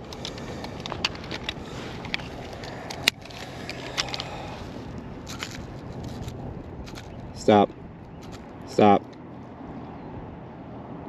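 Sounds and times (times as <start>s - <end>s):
small handling clicks and scrapes: 0.0s - 7.2s
low background rumble: 0.0s - 10.9s.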